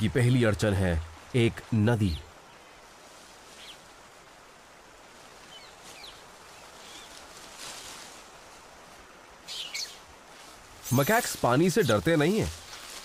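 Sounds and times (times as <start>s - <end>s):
faint forest ambience: 0.0s - 13.0s
short high bird chirps: 9.5s - 10.0s.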